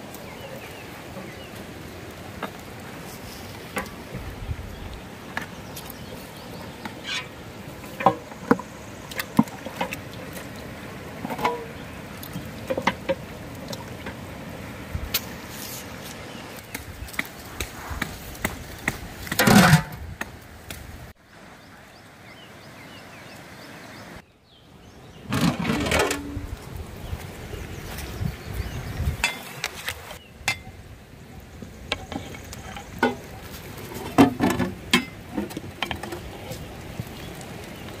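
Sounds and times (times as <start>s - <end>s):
water sloshing in metal pot: 5.3s - 14.6s.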